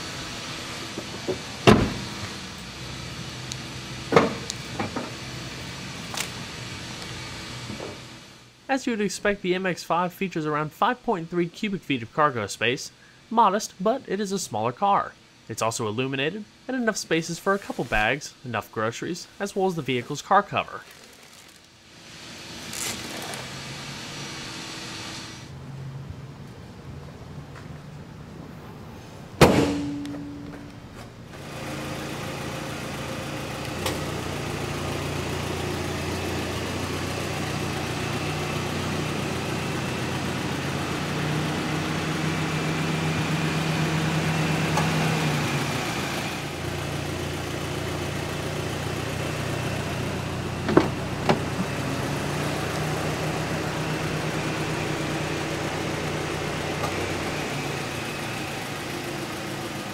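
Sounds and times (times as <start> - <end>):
low engine-like hum: 25.3 - 59.9.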